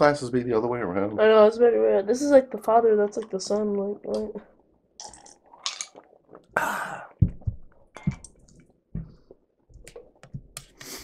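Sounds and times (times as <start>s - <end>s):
wet swallowing and chewing: 4.2s - 10.6s.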